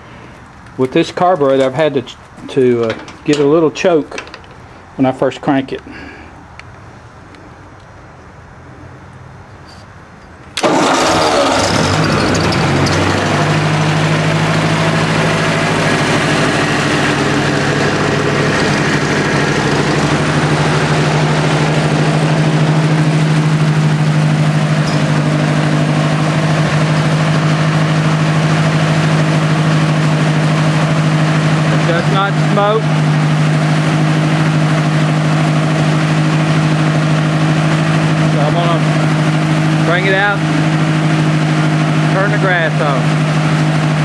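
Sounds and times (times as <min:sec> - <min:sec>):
tractor engine starting and idling: 0:10.5 - 0:44.0.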